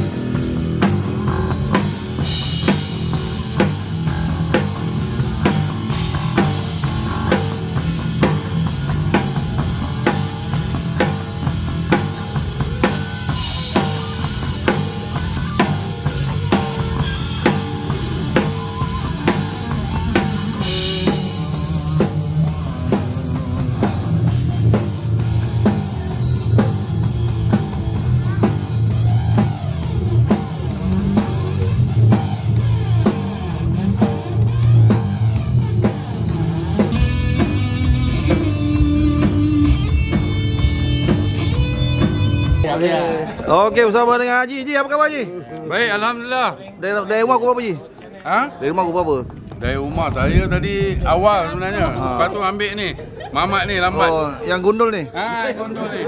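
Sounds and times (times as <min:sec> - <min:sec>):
drum kit beat: 0:00.0 - 0:42.8
rock band playing live: 0:00.0 - 0:44.4, 0:49.2 - 0:56.0.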